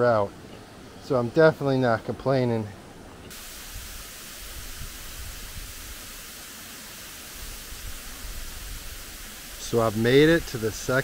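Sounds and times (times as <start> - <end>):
waterfall hiss: 3.3 - 11.0.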